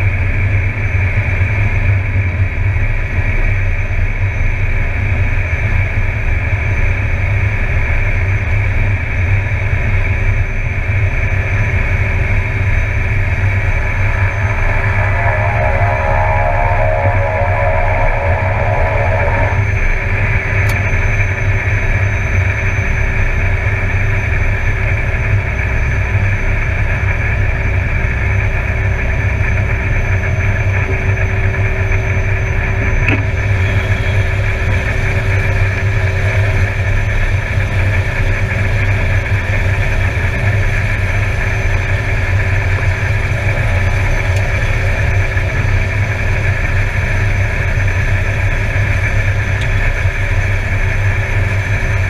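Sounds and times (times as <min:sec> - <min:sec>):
turboprop engine droning: 0:00.0 - 0:52.0.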